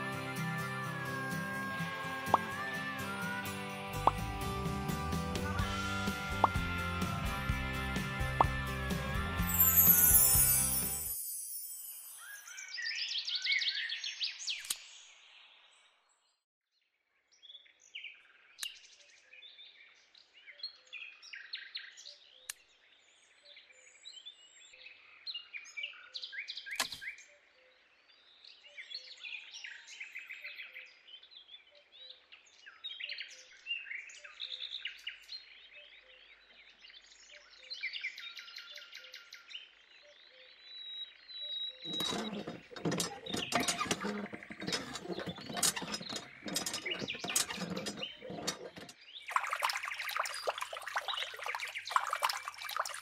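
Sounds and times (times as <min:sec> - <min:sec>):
small birds chirping: 0:32.0 - 0:53.0.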